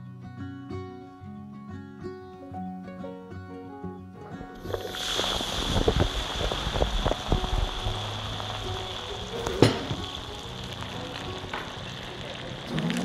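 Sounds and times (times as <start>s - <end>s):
ice clicks and pops: 4.5s - 13.0s
sparkling water fizzing over ice: 4.5s - 13.0s
glass clink: 9.4s - 10.2s.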